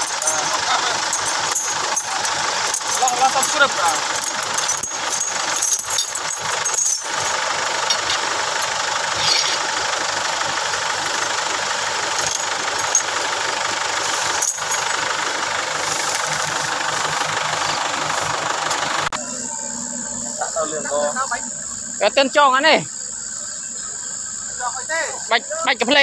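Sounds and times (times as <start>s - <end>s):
tow chain clinking: 0.0s - 19.2s
vehicle engine idling: 0.0s - 26.0s.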